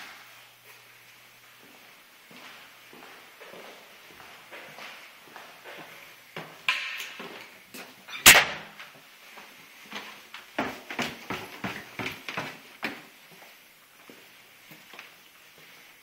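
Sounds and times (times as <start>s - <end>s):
footsteps on stairs: 0.0s - 8.1s, 8.7s - 15.9s.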